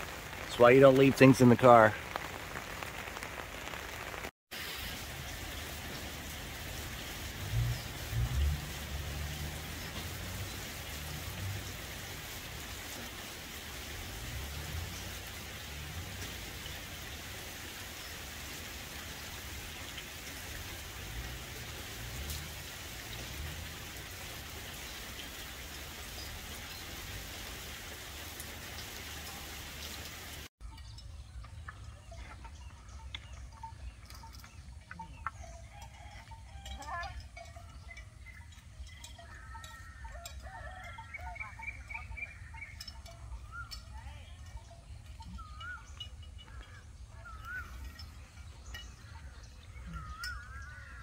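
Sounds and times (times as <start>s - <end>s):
rain falling on puddles: 0.0s - 30.5s.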